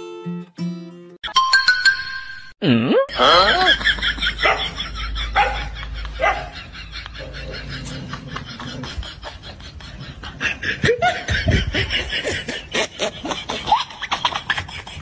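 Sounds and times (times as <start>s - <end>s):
people snickering: 3.1s - 15.0s.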